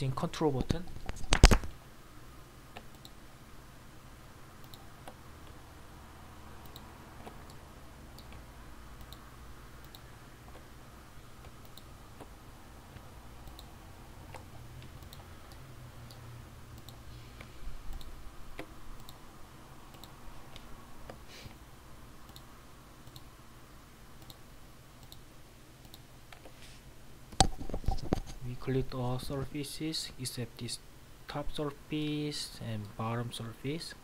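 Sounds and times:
computer mouse clicking: 0:02.7 - 0:03.2, 0:04.6 - 0:05.6, 0:06.6 - 0:08.4, 0:09.0 - 0:09.2, 0:09.8 - 0:10.7, 0:11.4 - 0:12.3, 0:12.9 - 0:13.7, 0:14.3 - 0:16.2, 0:16.8 - 0:19.2, 0:19.9 - 0:21.2, 0:22.3 - 0:23.3, 0:24.2 - 0:24.4, 0:25.0 - 0:25.2, 0:25.8 - 0:26.6.

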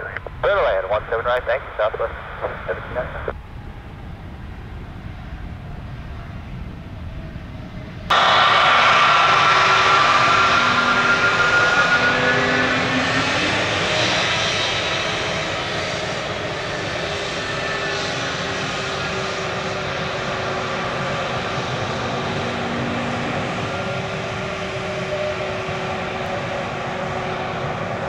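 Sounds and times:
jet engines whining: 0:00.0 - 0:28.0.

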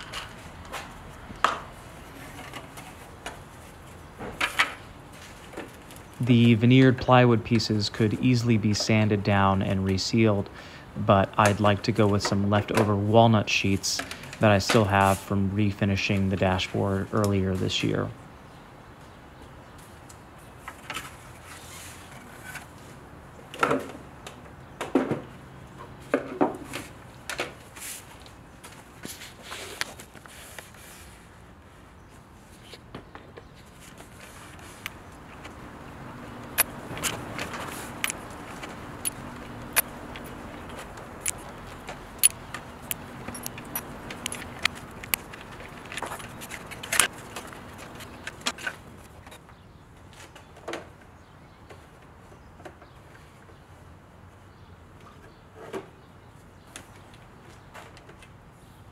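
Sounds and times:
small metal parts clinking: 0:35.4 - 0:48.5.

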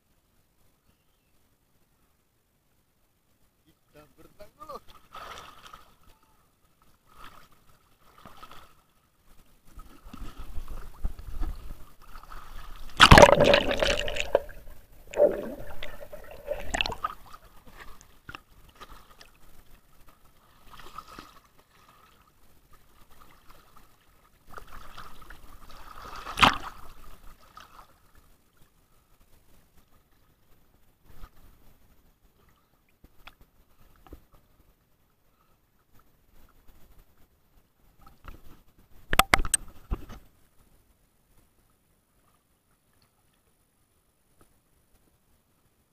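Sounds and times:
water sloshing and gurgling: 0:04.8 - 0:06.0, 0:06.8 - 0:28.7
water splashing: 0:04.8 - 0:06.1, 0:09.7 - 0:28.0.

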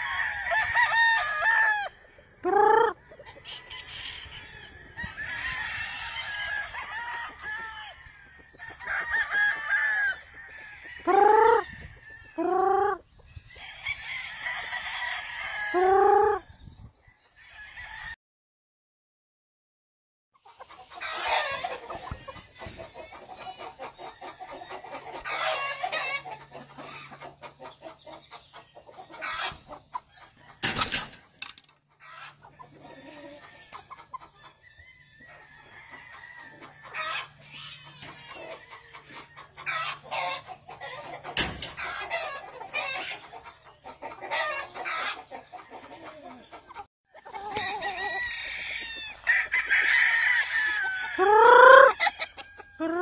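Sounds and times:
roosters crowing: 0:00.0 - 0:18.2, 0:20.8 - 0:27.0, 0:32.0 - 0:43.2, 0:47.1 - 0:53.0
chickens clucking: 0:01.2 - 0:17.4, 0:20.4 - 0:53.0.

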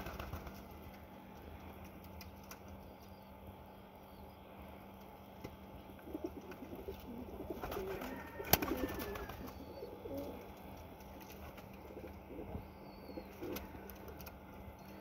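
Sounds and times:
pigeon cooing: 0:05.9 - 0:10.7, 0:11.7 - 0:14.3.

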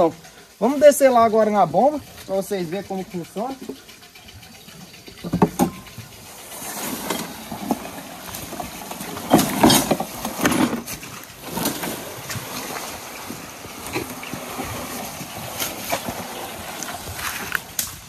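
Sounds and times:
rustling vegetation: 0:00.0 - 0:18.0
footsteps crunching: 0:08.3 - 0:18.0.

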